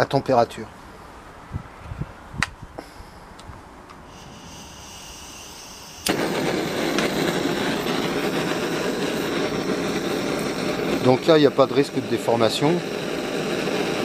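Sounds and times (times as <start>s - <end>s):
faint gas hiss: 2.7s - 14.0s
blowtorch clicks: 3.4s - 14.0s
blowtorch flame rushing: 4.0s - 14.0s.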